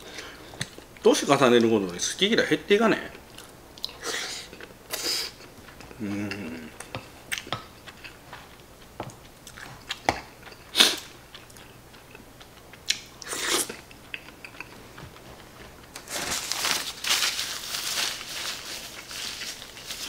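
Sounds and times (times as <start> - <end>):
chewing: 3.2 - 4.7, 5.3 - 16.0
tissue rustling: 15.5 - 20.0.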